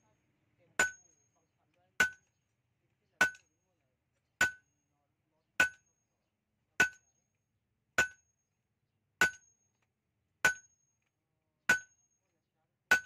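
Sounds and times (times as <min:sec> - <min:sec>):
hammer striking anvil: 0:00.8 - 0:01.1, 0:04.4 - 0:04.7, 0:05.6 - 0:05.9, 0:06.8 - 0:07.1, 0:08.0 - 0:08.2, 0:09.2 - 0:09.5, 0:10.4 - 0:10.8, 0:11.7 - 0:12.0.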